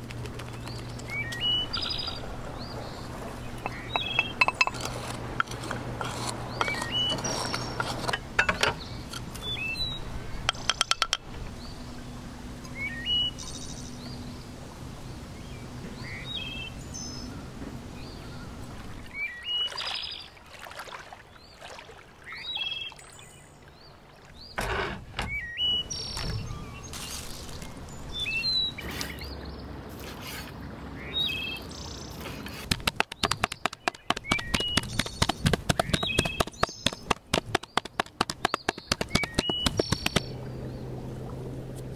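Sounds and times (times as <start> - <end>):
small birds chirping: 0.0 - 20.4, 25.2 - 41.1
knives chopping meat on wooden board: 32.6 - 40.3.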